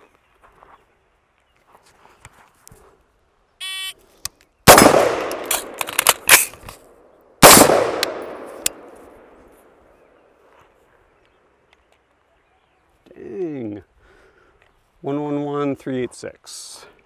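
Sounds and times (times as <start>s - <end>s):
sharp gun clicks: 4.2s - 9.1s
gunshot echoing: 4.7s - 6.5s, 7.4s - 9.4s.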